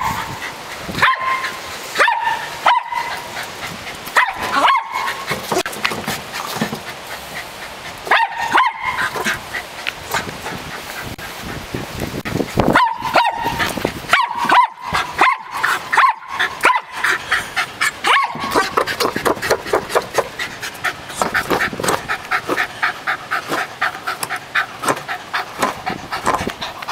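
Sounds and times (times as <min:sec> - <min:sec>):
small dog barking: 0:01.0 - 0:03.3, 0:04.2 - 0:05.2, 0:08.1 - 0:09.1, 0:12.7 - 0:17.1, 0:18.0 - 0:18.7
dog panting and snuffling: 0:03.0 - 0:12.8, 0:13.4 - 0:26.9.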